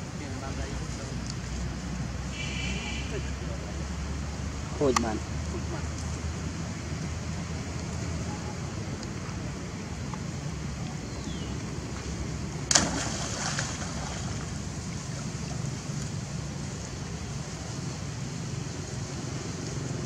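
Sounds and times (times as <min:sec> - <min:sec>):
water splashing: 0:09.2 - 0:20.0
sharp splash: 0:12.6 - 0:15.6.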